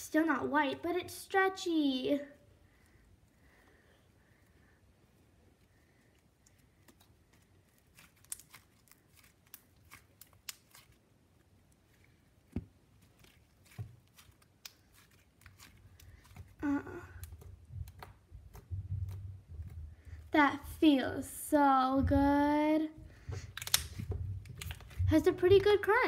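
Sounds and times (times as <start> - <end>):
slime crackling and popping: 6.4 - 21.4, 23.4 - 26.0.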